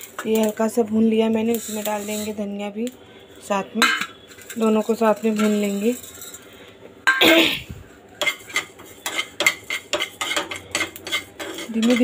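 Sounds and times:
spoon scraping seeds in pan: 0:00.0 - 0:03.0, 0:03.8 - 0:06.6, 0:08.1 - 0:12.0
spoon clattering on pan: 0:03.8 - 0:06.4, 0:08.2 - 0:12.0.

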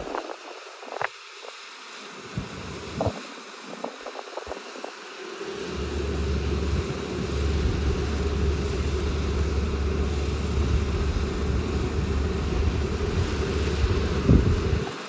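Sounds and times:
combine harvester engine drone: 0:02.2 - 0:03.1, 0:05.2 - 0:15.0.

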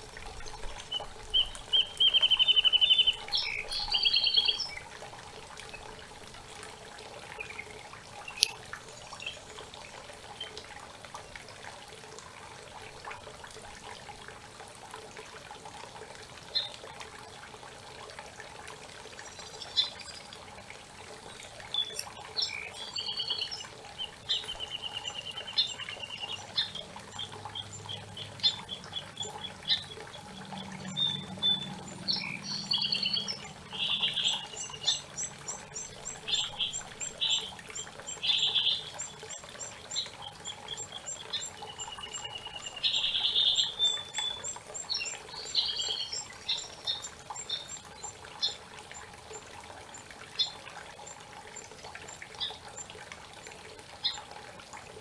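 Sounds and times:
songbirds singing: 0:00.0 - 0:06.6, 0:07.2 - 0:10.7, 0:16.5 - 0:16.8, 0:19.1 - 0:20.5, 0:21.1 - 0:53.0
rushing creek: 0:00.0 - 0:55.0.

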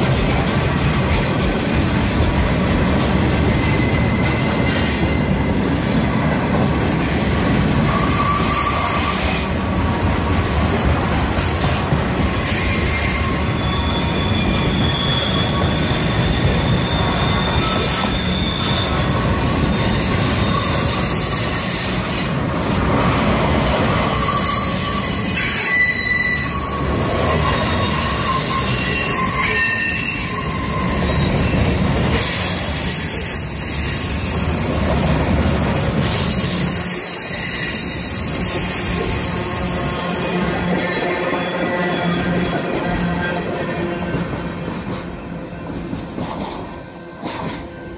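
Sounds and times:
train wheels rumbling on rail: 0:00.0 - 0:47.9
high-pitched wheel squeal: 0:02.9 - 0:07.2, 0:07.8 - 0:09.6, 0:12.1 - 0:42.6.

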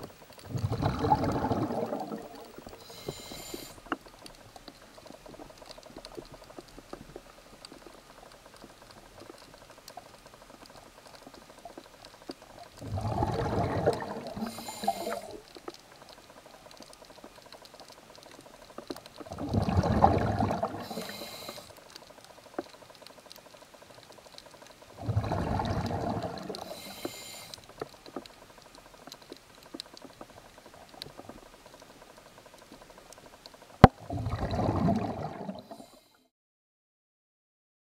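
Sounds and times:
exhaled bubbles gurgling underwater: 0:00.0 - 0:08.2, 0:11.0 - 0:16.1, 0:19.0 - 0:21.7, 0:24.8 - 0:28.3, 0:33.8 - 0:36.1
faint crackle: 0:00.0 - 0:36.3.

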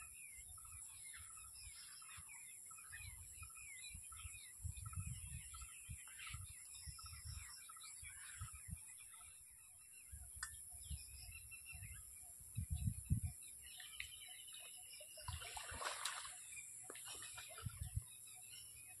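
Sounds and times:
birds chirping: 0:00.0 - 0:19.0
water splash: 0:15.3 - 0:17.7.

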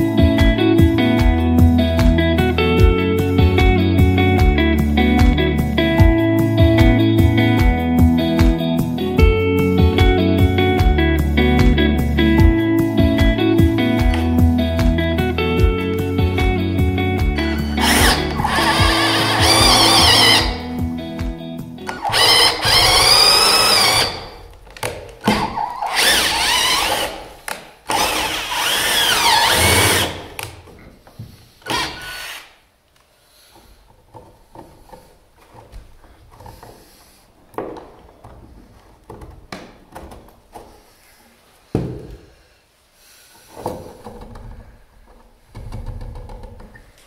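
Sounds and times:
cordless drill whining: 0:17.5 - 0:20.7, 0:21.9 - 0:24.5, 0:25.2 - 0:30.5, 0:31.6 - 0:32.6.

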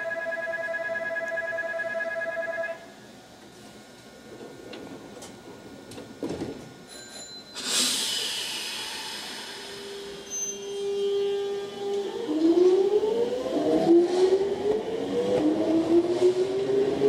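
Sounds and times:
electronic platform bell trill: 0:00.0 - 0:02.8
train air release hiss: 0:07.5 - 0:11.8.

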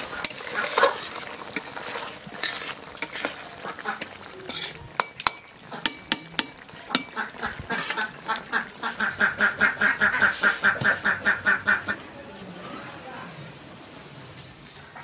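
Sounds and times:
duck quacking rapidly: 0:07.2 - 0:12.0.

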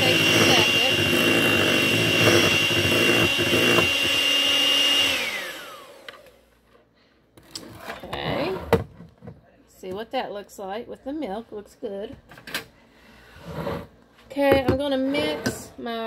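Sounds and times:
electric mixer whirring: 0:00.0 - 0:06.4.

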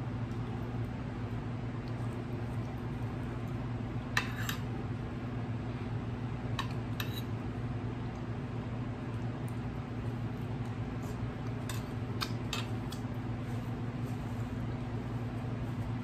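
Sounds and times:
steady low hum: 0:00.0 - 0:16.0
metal spoon scraping a plate: 0:04.2 - 0:04.7, 0:06.6 - 0:07.3.

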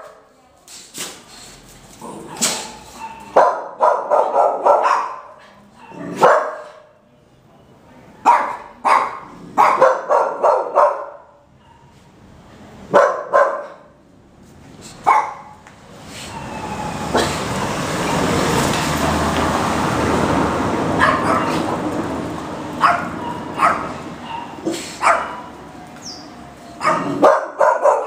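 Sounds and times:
dog barking: 0:02.3 - 0:06.9, 0:08.2 - 0:12.0, 0:12.9 - 0:14.0, 0:15.0 - 0:15.6, 0:21.0 - 0:21.7, 0:22.8 - 0:25.6, 0:26.8 - 0:28.0.

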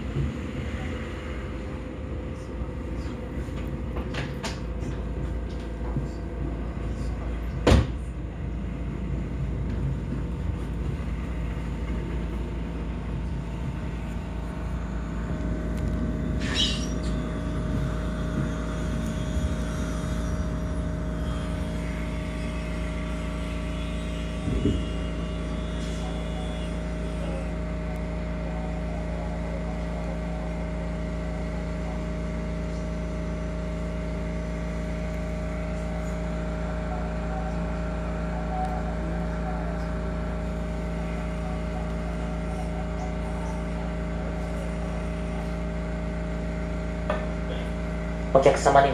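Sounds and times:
train slowing to a halt: 0:00.0 - 0:04.0, 0:08.2 - 0:48.3
onboard equipment hum: 0:00.0 - 0:48.9.

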